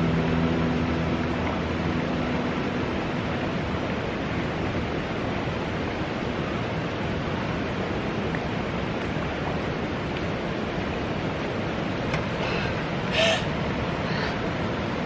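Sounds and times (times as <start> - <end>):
guitar music: 0.0 - 4.0
river water rushing: 0.0 - 15.0.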